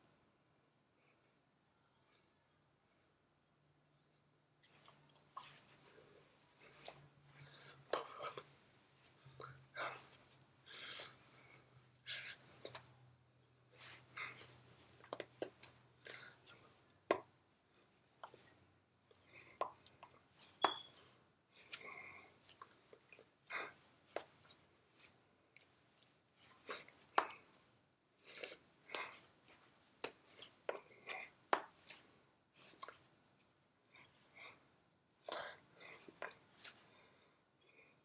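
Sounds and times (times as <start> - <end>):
breaths: 5.4 - 12.8, 16.0 - 16.8, 20.9 - 22.6, 33.9 - 38.0
lip smacks: 12.1 - 13.0.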